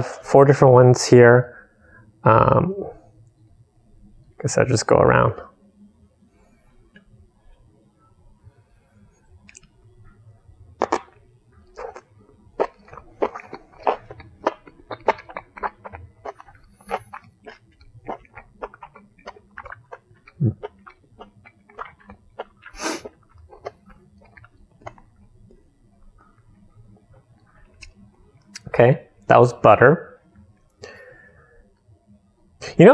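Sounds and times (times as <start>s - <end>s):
person chewing: 9.4s - 9.8s, 10.8s - 25.6s
puff of breath: 22.7s - 23.1s, 30.8s - 31.6s.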